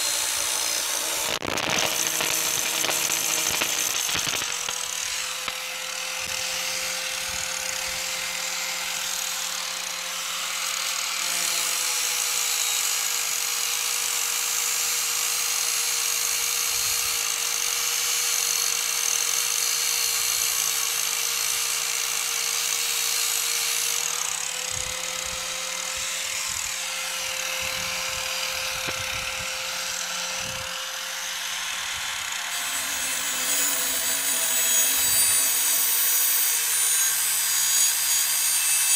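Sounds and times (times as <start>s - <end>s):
angle grinder grinding steel: 0.0s - 11.7s, 25.8s - 38.9s.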